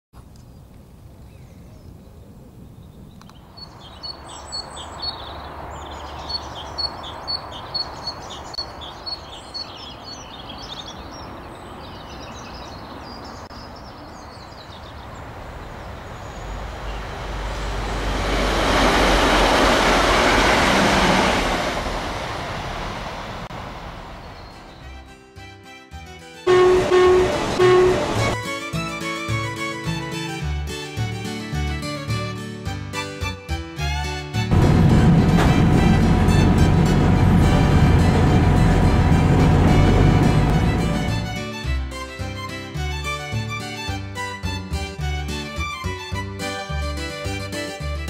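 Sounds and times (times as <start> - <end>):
train crossing a bridge: 14.2 - 25.4, 26.3 - 28.7, 33.2 - 44.7
low background rumble: 34.5 - 41.4.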